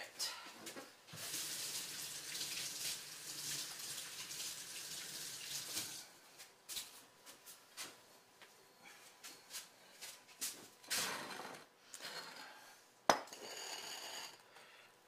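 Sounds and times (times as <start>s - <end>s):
water running from tap: 1.1s - 6.0s.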